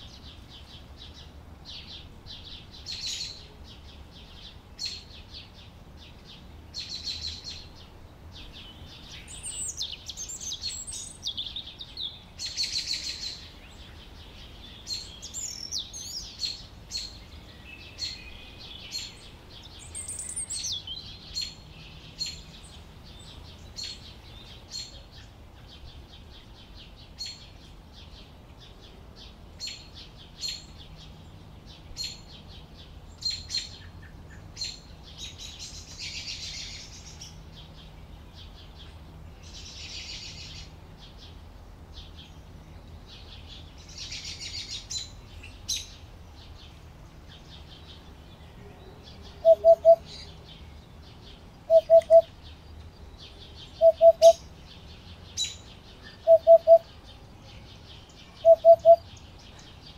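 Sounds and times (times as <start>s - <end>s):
canary warbling song: 49.1s - 50.5s, 51.6s - 52.5s, 53.6s - 57.0s, 58.2s - 59.1s
canaries chirping: 49.1s - 57.0s.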